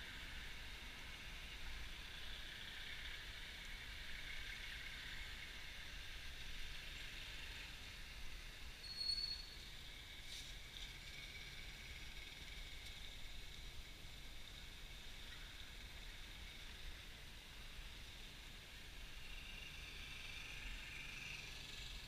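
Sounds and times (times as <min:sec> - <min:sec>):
muffled street and vehicle noise: 0:00.0 - 0:22.0
short high squeal: 0:08.8 - 0:09.7.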